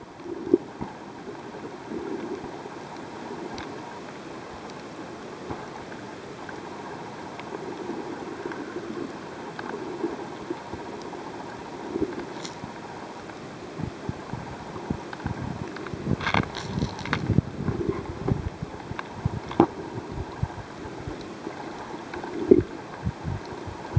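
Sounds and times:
underwater rush of water: 0:00.0 - 0:23.9
faint clicks: 0:02.1 - 0:06.7.

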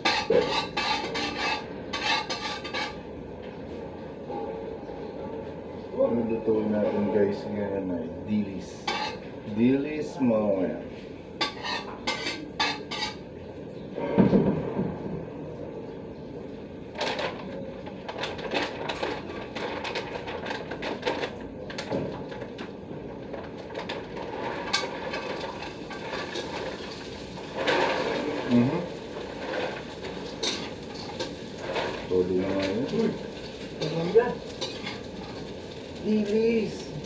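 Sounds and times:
metal spatula scraping a wok: 0:00.0 - 0:03.0, 0:08.8 - 0:09.3, 0:11.4 - 0:13.2, 0:23.8 - 0:35.7.

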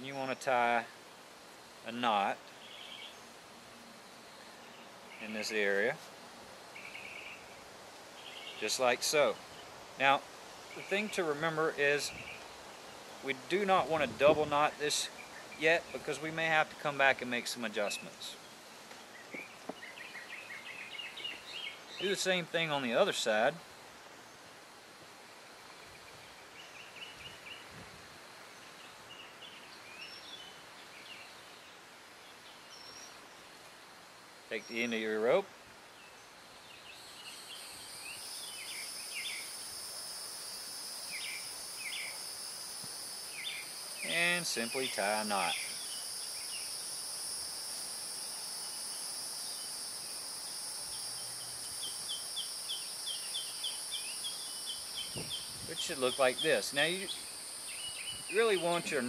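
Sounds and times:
songbirds chirping and trilling: 0:00.0 - 0:24.6, 0:34.5 - 0:39.8, 0:40.9 - 0:42.5, 0:43.2 - 0:47.0, 0:48.3 - 0:59.0
insect chorus drone: 0:00.0 - 0:59.0
outdoor background noise: 0:00.0 - 0:59.0.

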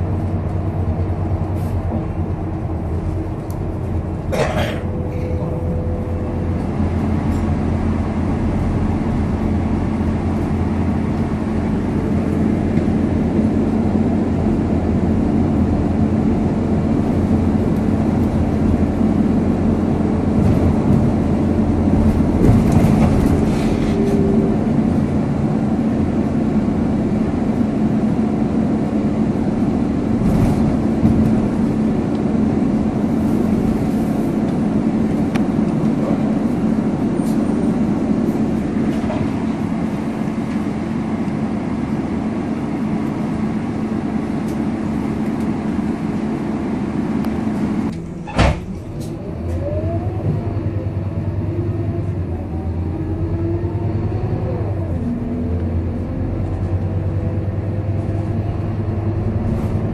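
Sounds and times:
bus diesel engine running: 0:00.0 - 0:59.9
road noise: 0:00.0 - 0:59.9
thump: 0:48.2 - 0:48.7.

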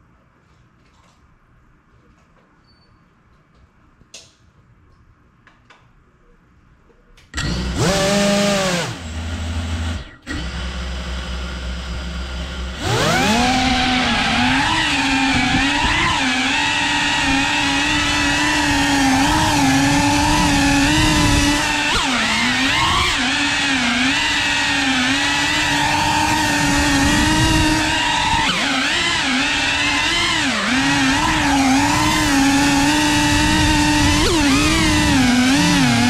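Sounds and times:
drone motors whining: 0:07.4 - 0:36.0.

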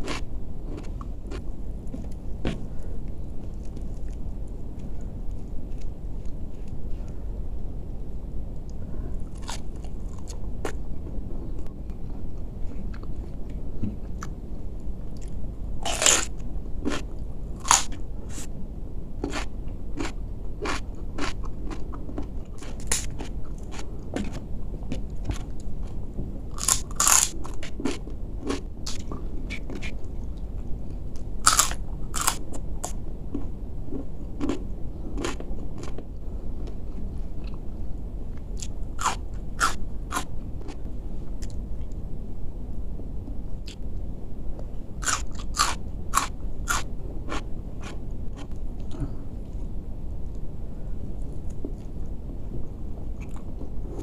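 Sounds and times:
person chewing crisp food: 0:00.0 - 0:07.0, 0:09.2 - 0:10.8, 0:15.1 - 0:18.5, 0:19.2 - 0:24.4, 0:25.0 - 0:30.4, 0:31.2 - 0:37.6, 0:38.4 - 0:40.8, 0:45.0 - 0:49.6, 0:53.2 - 0:54.0
low background hum: 0:00.0 - 0:54.0.

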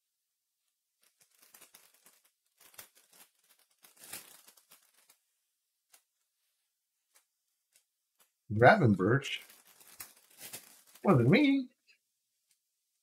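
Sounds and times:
packaging crinkling and tearing: 0:01.0 - 0:05.2, 0:09.3 - 0:11.4.

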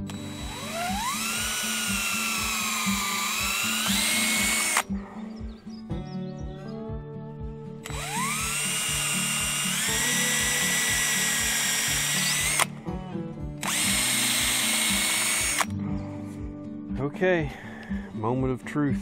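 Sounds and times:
cordless drill whining: 0:00.0 - 0:04.9, 0:07.8 - 0:12.7, 0:13.6 - 0:15.7
banjo music: 0:12.7 - 0:13.6.

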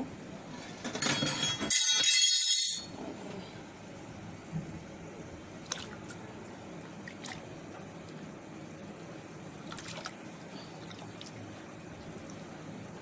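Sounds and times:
liquid sloshing in a pot: 0:09.4 - 0:12.8.

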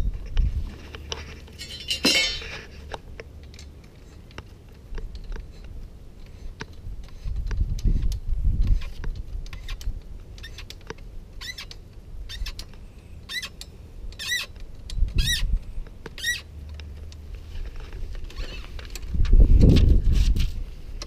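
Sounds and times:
dull knocks of parts handled: 0:00.8 - 0:03.0
short high squeaks: 0:10.4 - 0:10.7, 0:11.4 - 0:12.6, 0:13.3 - 0:13.6, 0:14.2 - 0:14.5, 0:15.2 - 0:15.5, 0:16.2 - 0:16.5, 0:18.3 - 0:18.7.

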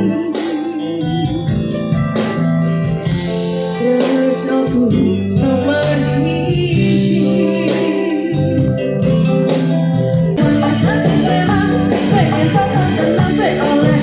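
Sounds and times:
woman singing: 0:00.0 - 0:01.6, 0:03.7 - 0:09.3, 0:10.4 - 0:14.0
guitar melody: 0:00.0 - 0:14.0
keyboard: 0:00.0 - 0:14.0.

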